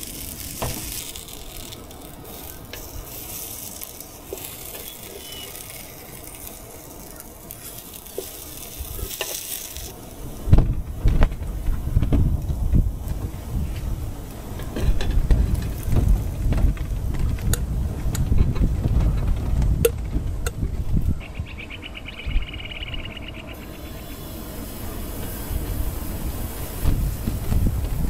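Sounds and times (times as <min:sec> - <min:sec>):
utensil scraping metal saucepan: 0:00.0 - 0:09.9
rapid high rattling: 0:00.0 - 0:10.1
bacon sizzling on griddle: 0:00.0 - 0:11.3, 0:23.5 - 0:28.0.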